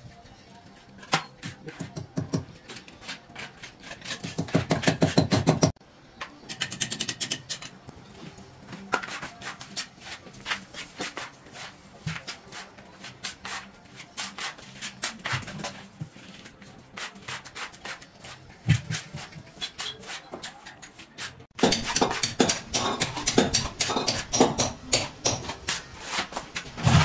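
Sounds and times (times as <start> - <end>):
trowel scraping wet mortar: 2.6 - 5.4, 25.4 - 27.0.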